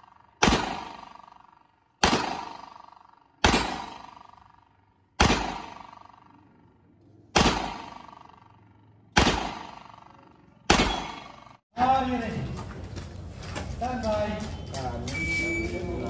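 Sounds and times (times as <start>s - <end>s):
pistol shots echoing: 0.0s - 6.7s, 7.3s - 11.6s.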